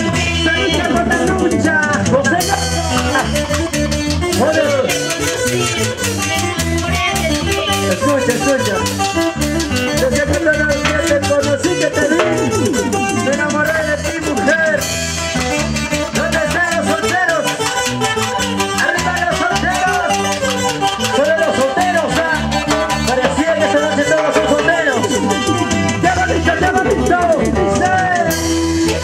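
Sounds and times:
band playing latin dance music: 0.0 - 29.0.

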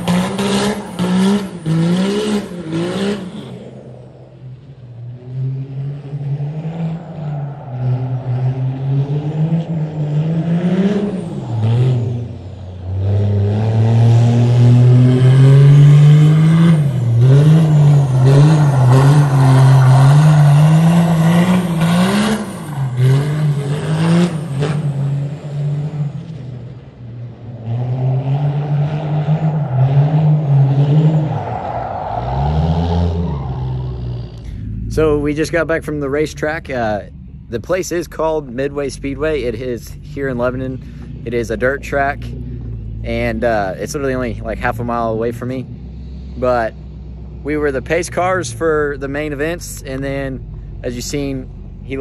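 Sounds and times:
pickup diesel engine revving: 0.0 - 52.0.

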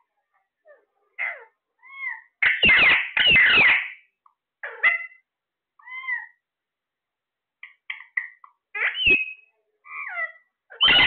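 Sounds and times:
parakeet rough screeches: 1.2 - 4.0, 10.2 - 11.0
parakeets squawking: 1.2 - 6.4, 7.6 - 11.0.

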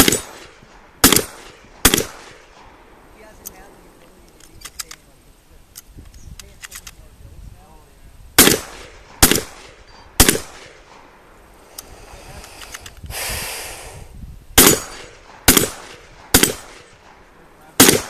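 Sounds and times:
shotgun shots: 0.0 - 2.9, 8.4 - 11.2, 14.6 - 18.0.

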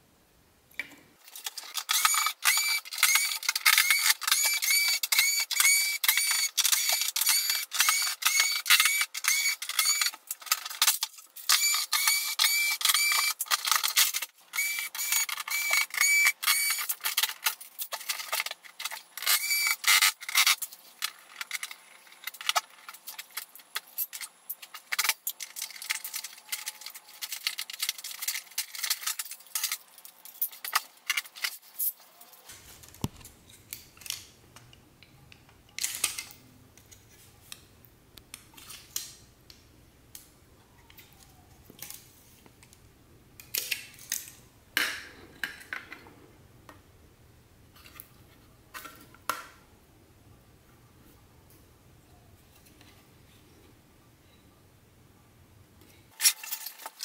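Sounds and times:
tools and metal parts clinking: 15.0 - 32.4, 56.1 - 57.0.

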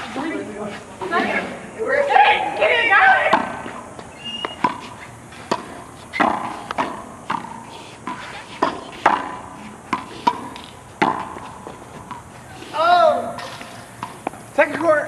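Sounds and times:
racquetball pops echoing off walls: 5.5 - 11.4, 13.4 - 15.0.

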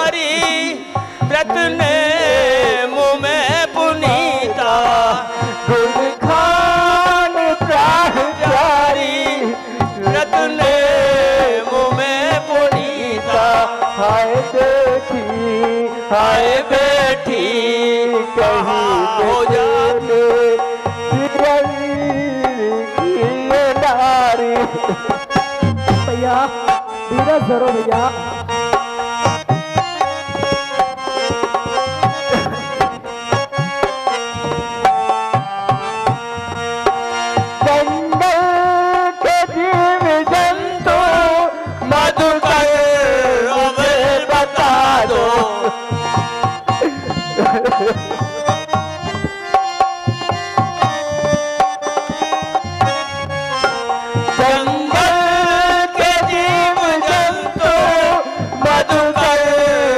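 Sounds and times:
tabla drumming: 0.0 - 59.9
wavering melody: 24.4 - 38.4, 45.4 - 55.2.

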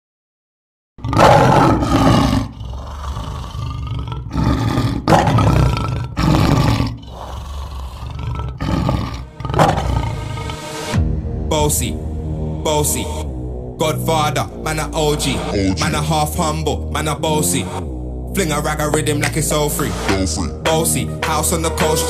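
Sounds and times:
lion roaring: 1.0 - 11.0.

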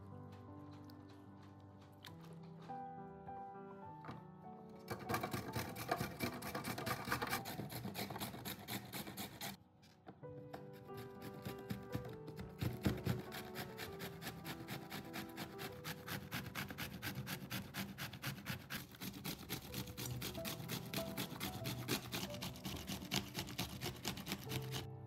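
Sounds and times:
soft background music: 0.0 - 25.0
vegetable rasping on box grater: 4.9 - 9.6, 10.9 - 24.9.

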